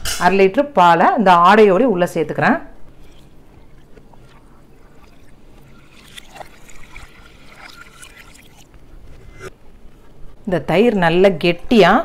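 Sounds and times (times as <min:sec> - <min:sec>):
milk pouring into a steel pot: 0:02.8 - 0:08.8.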